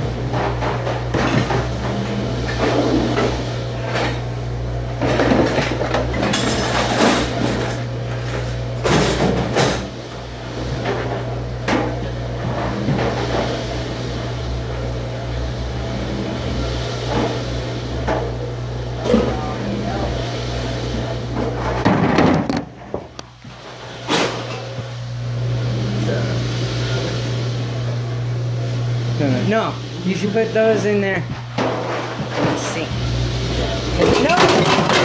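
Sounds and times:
low machine hum: 0.0 - 35.0
dishes and utensils clattering: 34.0 - 35.0.

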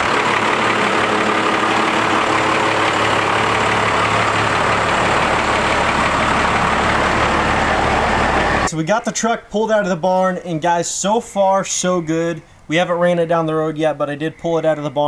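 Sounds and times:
diesel engine idling: 0.0 - 8.7.

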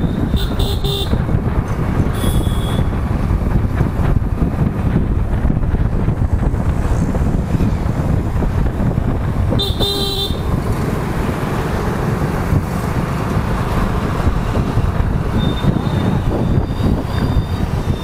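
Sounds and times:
wind and road rumble: 0.0 - 18.0
vehicle horn honk: 0.2 - 1.2, 2.2 - 2.9, 9.6 - 10.5.

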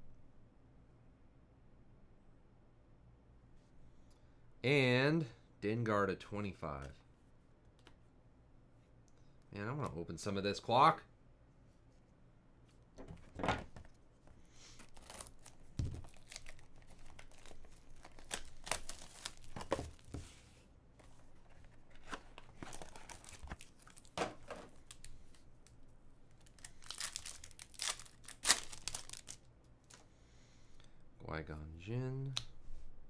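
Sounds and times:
foil pack crinkling and tearing: 14.7 - 20.1, 22.0 - 25.4, 26.3 - 30.0.

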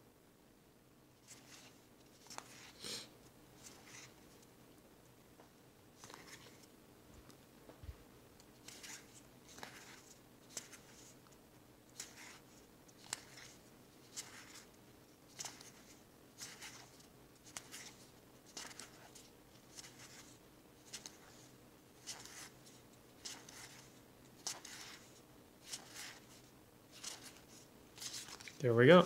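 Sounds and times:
cards swishing: 1.2 - 2.8, 6.0 - 6.7, 8.6 - 11.2, 12.0 - 14.7, 15.3 - 20.3, 20.9 - 26.4, 27.0 - 28.6.

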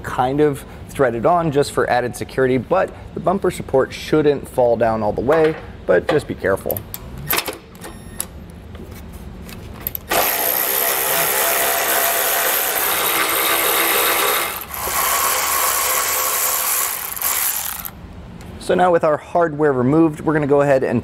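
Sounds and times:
power ratchet motor whir: 10.0 - 18.0.

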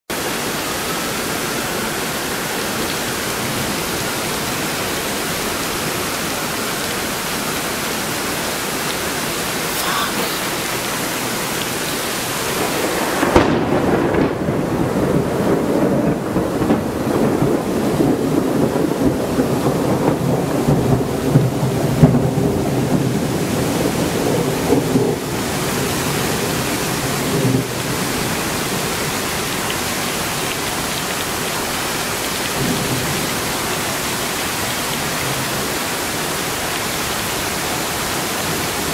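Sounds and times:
steady rain hiss: 0.1 - 38.9
thunderclap rolling into rumble: 12.5 - 25.4.

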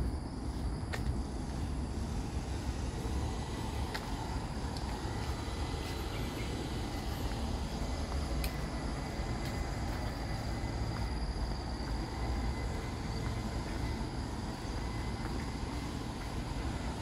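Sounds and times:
high-pitched insect tones: 0.1 - 17.0
faint ticks: 8.4 - 8.6.

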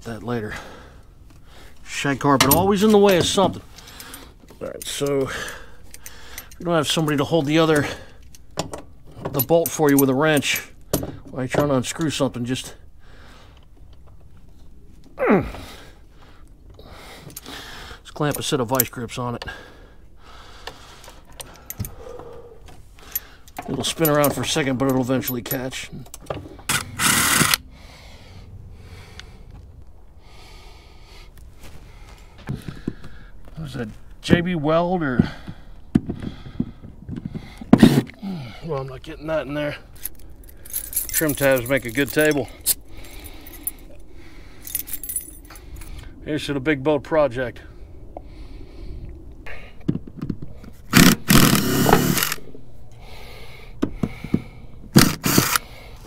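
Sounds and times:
power driver burst: 26.7 - 27.6, 50.9 - 52.4, 55.0 - 55.6.

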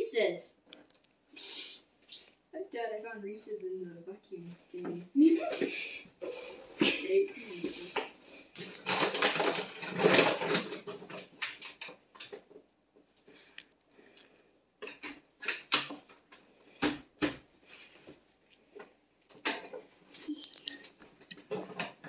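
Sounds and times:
plastic bags crinkling: 8.5 - 12.4.

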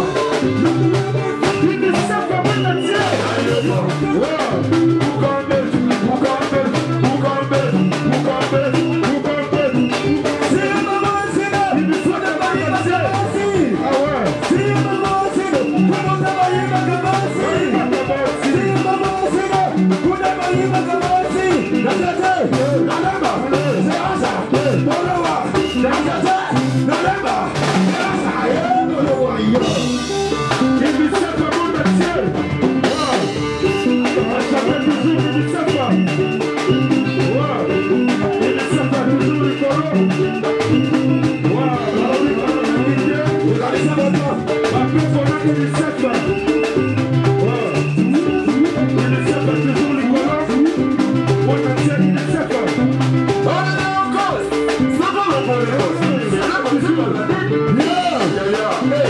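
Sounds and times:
person singing: 0.0 - 36.0, 37.0 - 46.4
steady drum beat: 0.0 - 59.0.

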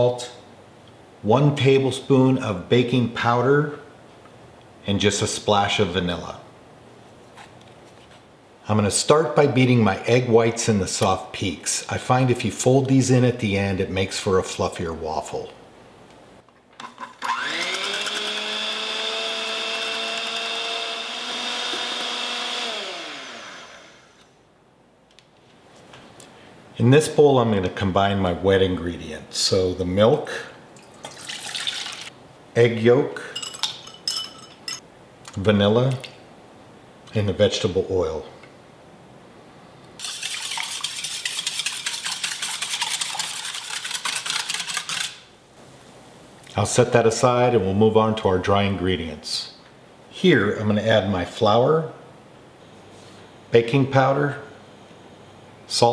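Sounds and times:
electric hand mixer whirring: 17.2 - 24.2
mixer motor winding down: 17.2 - 24.3
whisk scraping a metal bowl: 40.0 - 45.2.

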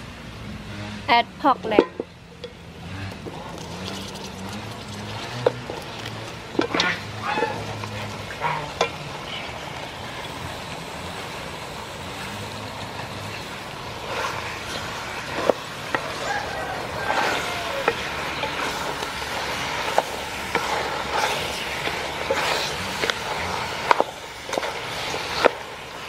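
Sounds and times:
meat rustling in pot: 3.3 - 8.4, 13.4 - 26.0.

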